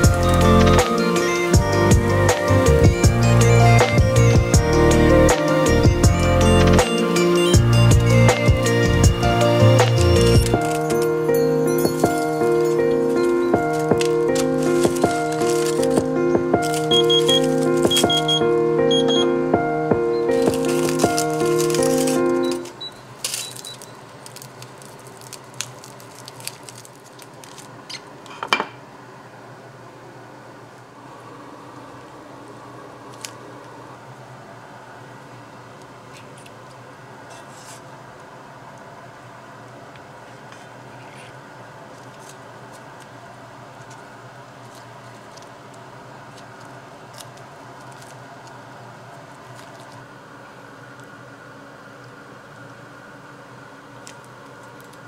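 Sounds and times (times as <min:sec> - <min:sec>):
fan-like background hum: 0:00.0 - 0:55.0
aluminium foil crinkling: 0:09.4 - 0:11.2, 0:11.8 - 0:18.1, 0:20.3 - 0:28.4, 0:41.9 - 0:43.2, 0:43.8 - 0:50.2, 0:54.0 - 0:55.0.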